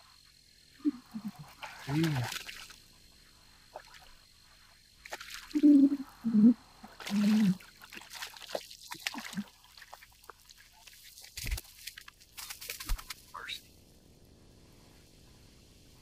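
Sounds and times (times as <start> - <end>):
fish splashing and thrashing in water: 1.5 - 2.8, 5.0 - 5.6, 6.8 - 13.2.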